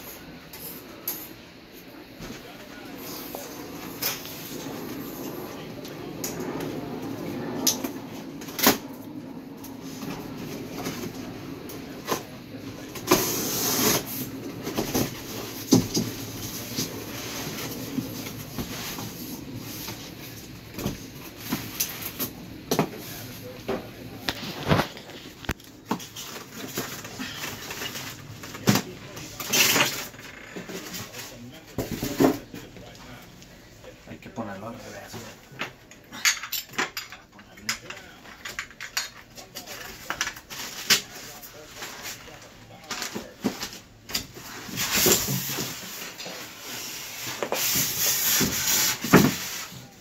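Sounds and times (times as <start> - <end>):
styrofoam and cardboard rustling: 39.7 - 50.0.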